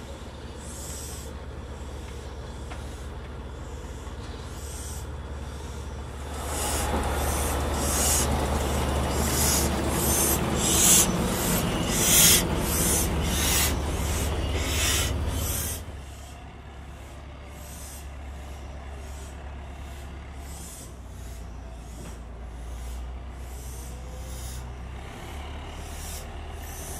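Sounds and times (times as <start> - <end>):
steam locomotive chuffing: 0.0 - 26.9.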